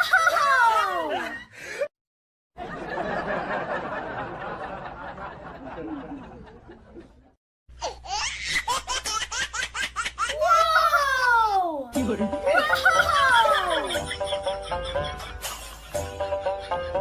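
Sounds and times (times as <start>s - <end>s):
people laughing: 0.0s - 1.9s, 2.6s - 7.4s, 12.0s - 17.0s.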